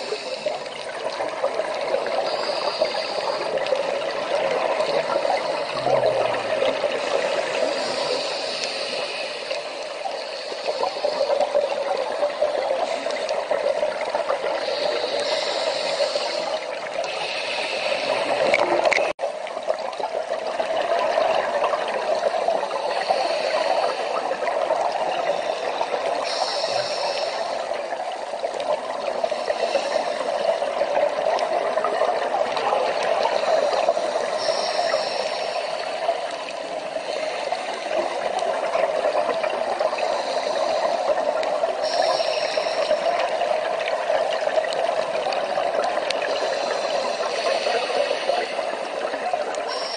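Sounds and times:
underwater rushing water: 0:00.0 - 0:49.9
high hissing: 0:05.5 - 0:11.3, 0:14.6 - 0:18.5, 0:26.2 - 0:27.6, 0:34.0 - 0:36.0, 0:41.8 - 0:43.1.

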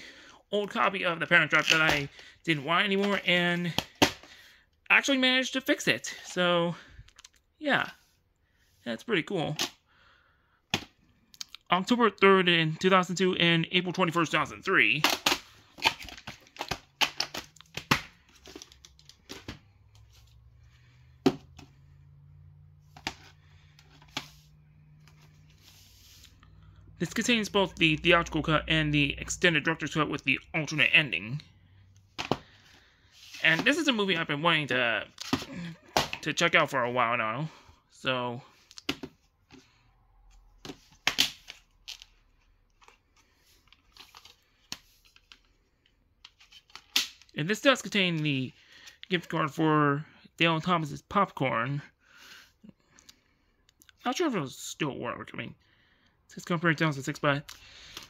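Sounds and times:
plastic cases clicking and knocking: 0:15.0 - 0:19.7, 0:21.2 - 0:21.7.

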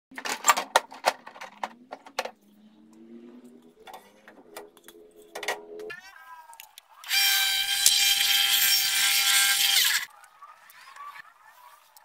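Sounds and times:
faint rising tone: 0:02.4 - 0:05.9.

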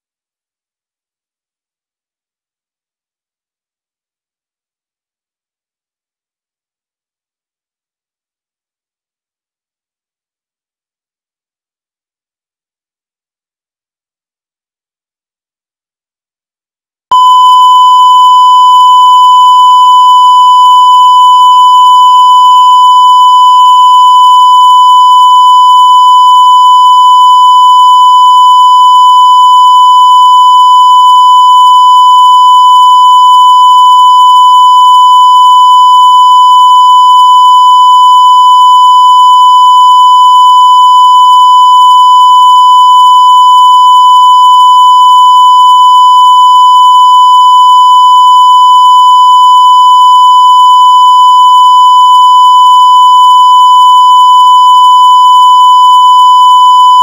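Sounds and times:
steady test tone beep: 0:17.1 - 0:57.0.

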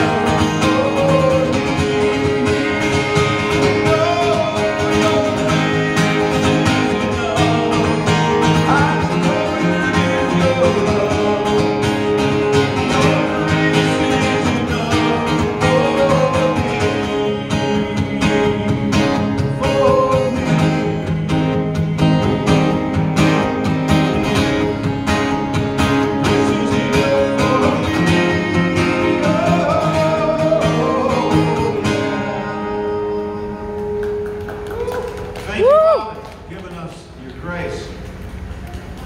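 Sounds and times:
man singing: 0:00.0 - 0:22.8, 0:26.1 - 0:33.2
acoustic guitar strumming: 0:00.0 - 0:35.5.

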